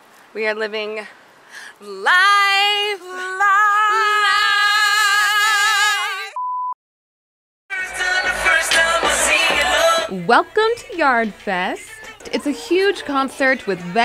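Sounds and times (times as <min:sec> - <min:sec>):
short steady beep: 0:06.4 - 0:06.8.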